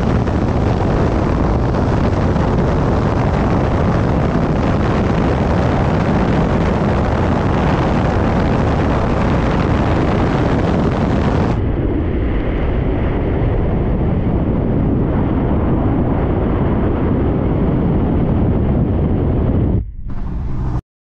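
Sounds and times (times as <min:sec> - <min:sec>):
wind rumbling on microphone: 0:00.0 - 0:20.8
road and vehicle noise: 0:19.8 - 0:20.8.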